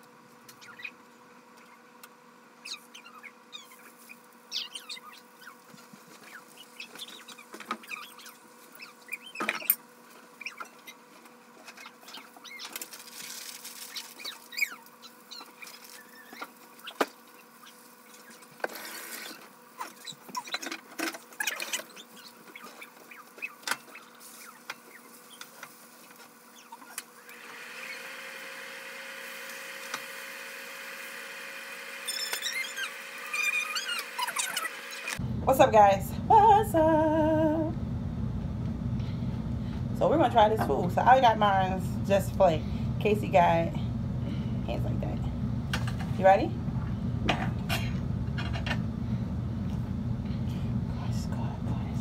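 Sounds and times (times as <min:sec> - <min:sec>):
steady background hum: 0:00.0 - 0:52.0
utensils and packaging clicks and rustles: 0:09.4 - 0:27.2
loud steady hum: 0:34.8 - 0:52.0.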